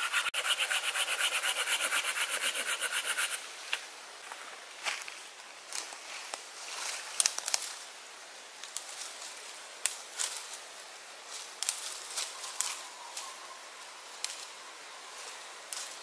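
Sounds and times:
dead leaves rustling underfoot: 0:03.6 - 0:16.0
dry twigs snapping: 0:07.2 - 0:07.8, 0:11.6 - 0:11.8.

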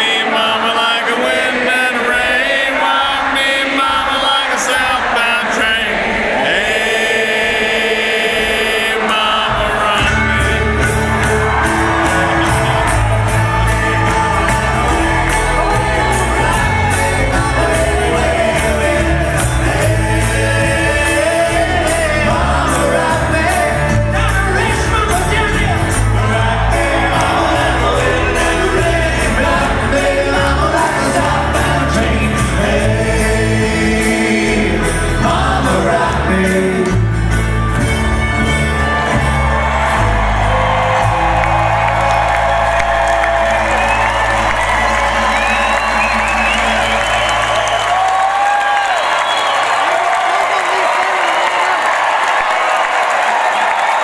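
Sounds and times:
person singing: 0:06.6 - 0:37.4
string band playing upbeat song: 0:09.0 - 0:51.3.

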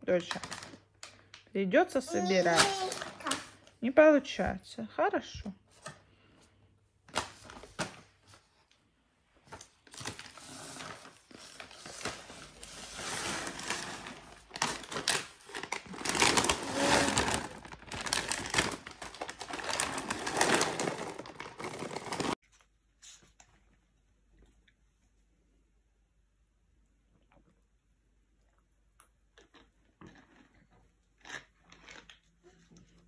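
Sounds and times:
plastic packet crinkling: 0:00.2 - 0:01.2, 0:09.7 - 0:22.4.

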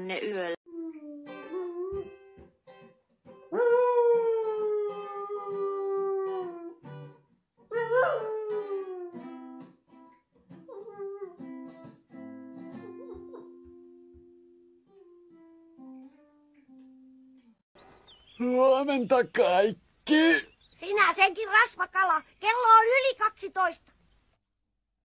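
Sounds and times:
guitar music: 0:01.1 - 0:03.6, 0:06.3 - 0:07.3, 0:08.5 - 0:17.6
dog howling: 0:03.5 - 0:06.8, 0:07.7 - 0:09.6.

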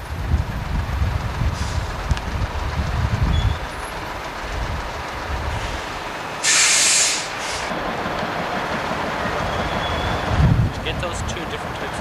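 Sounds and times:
bus diesel engine rumbling: 0:00.0 - 0:12.0
air brakes hissing: 0:01.5 - 0:02.0, 0:05.5 - 0:07.7.

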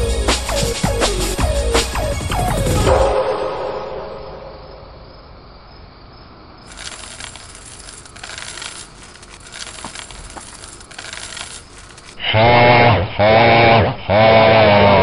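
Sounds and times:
music: 0:00.0 - 0:04.2
small clicks and clinks: 0:06.7 - 0:12.2.

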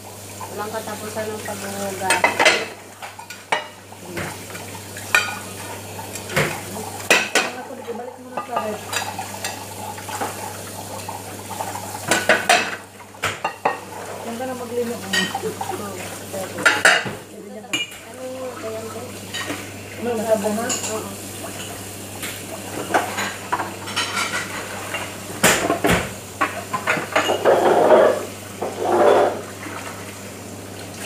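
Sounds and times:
ceramic plates clinking: 0:15.1 - 0:15.7, 0:26.4 - 0:29.4.

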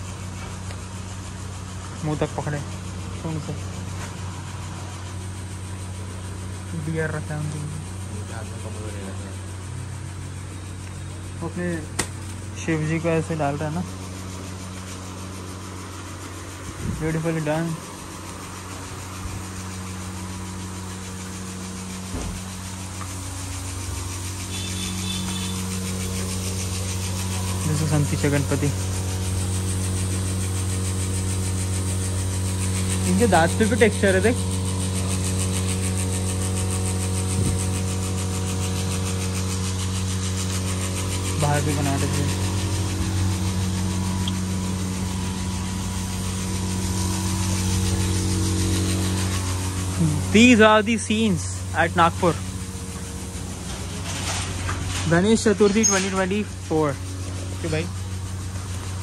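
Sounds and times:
constant hiss: 0:00.0 - 0:59.0
machinery humming: 0:00.0 - 0:59.0.

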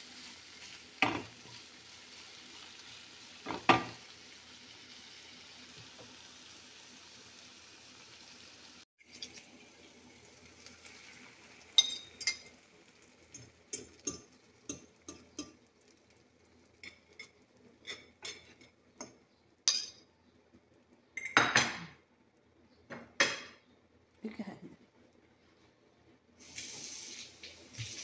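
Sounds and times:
egg sizzling in frying pan: 0:00.0 - 0:18.8, 0:26.4 - 0:28.0
utensil scraping and clinking on pan: 0:16.8 - 0:18.8.

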